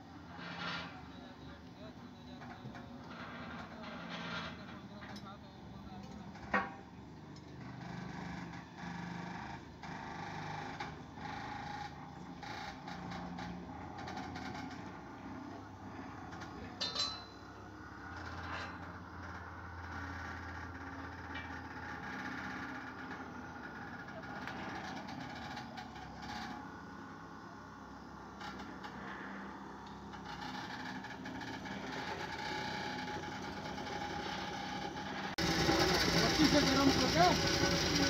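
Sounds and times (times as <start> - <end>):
engine idling: 7.4 - 38.0
metal plate clank: 16.8 - 17.4.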